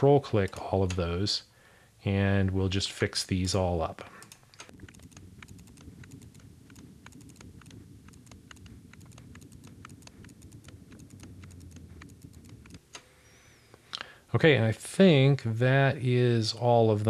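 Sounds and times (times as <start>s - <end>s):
faint low hum: 0.0s - 17.0s
computer mouse clicking: 4.2s - 13.1s.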